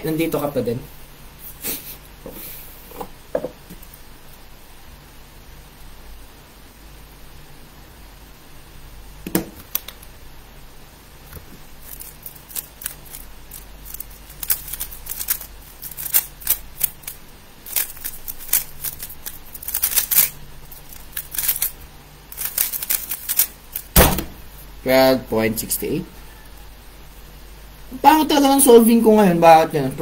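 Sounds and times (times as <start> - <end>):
knock: 3.3 - 3.6
plastic puzzle cube clicking: 11.9 - 23.9.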